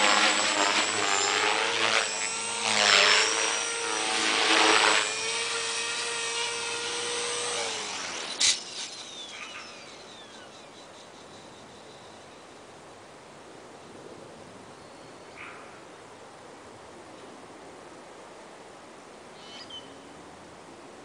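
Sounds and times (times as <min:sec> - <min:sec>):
rc helicopter rotor whine: 0:00.0 - 0:10.5.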